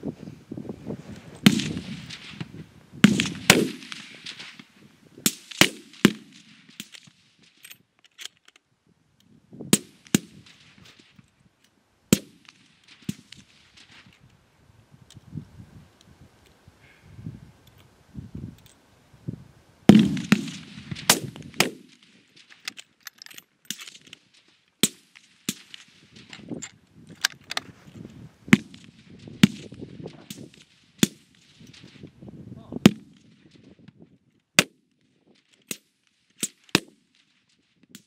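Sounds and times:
rifle shots: 1.4 - 7.3, 12.1 - 14.0, 19.9 - 22.5, 28.5 - 31.9.

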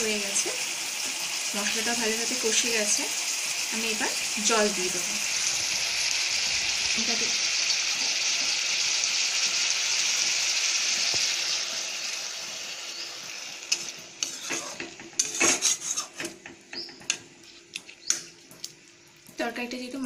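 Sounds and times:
food sizzling in oil: 0.0 - 17.3
metal spatula scraping pan: 13.7 - 16.4.

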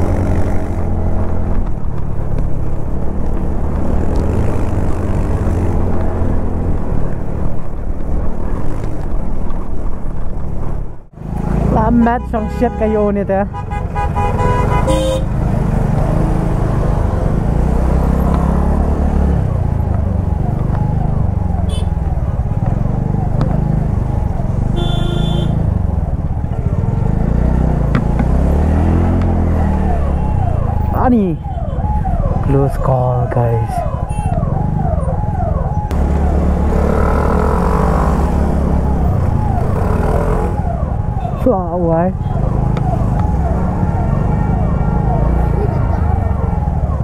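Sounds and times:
scooter engine and road rumble: 0.0 - 47.0
passing vehicle engine: 26.6 - 31.0, 35.9 - 47.0.

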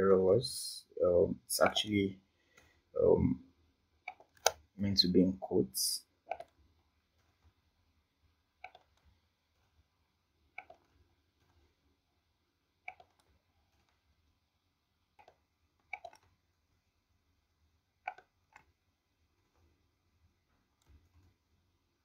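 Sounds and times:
keyboard and mouse clicks: 4.0 - 4.7, 6.3 - 7.6, 8.6 - 9.8, 10.5 - 11.7, 12.8 - 14.1, 15.1 - 16.4, 18.0 - 19.8, 20.6 - 21.6.

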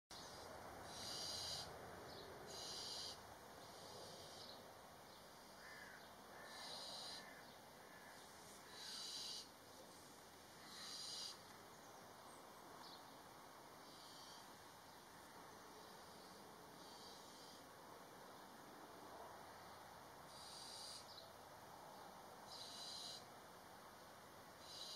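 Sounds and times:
owl chicks hissing: 0.3 - 1.7, 2.5 - 4.6, 6.4 - 7.4, 8.4 - 9.5, 10.6 - 11.4, 13.8 - 14.6, 16.0 - 17.7, 20.3 - 21.1, 22.5 - 23.2, 24.6 - 24.9.

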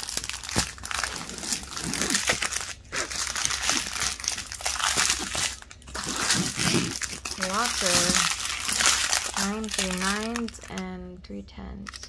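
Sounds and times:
plastic bags crinkling: 0.0 - 10.9.

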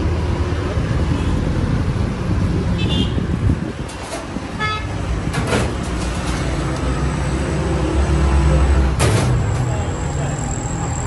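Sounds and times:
street traffic: 0.0 - 11.0
vehicle engine rumbling: 0.0 - 11.0
car horn toot: 2.8 - 3.2, 4.6 - 4.9.

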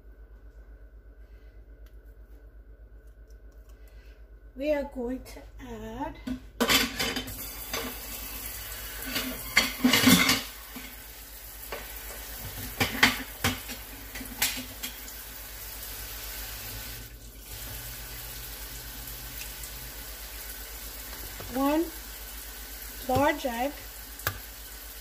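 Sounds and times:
faint background hum: 0.0 - 25.0
dishes and utensils clinking: 6.6 - 8.0, 9.0 - 11.0.

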